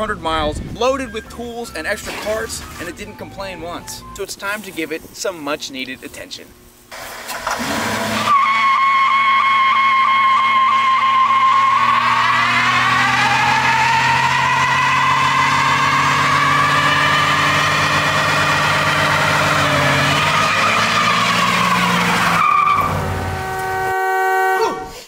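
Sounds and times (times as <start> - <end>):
tyre screeching: 7.4 - 23.9.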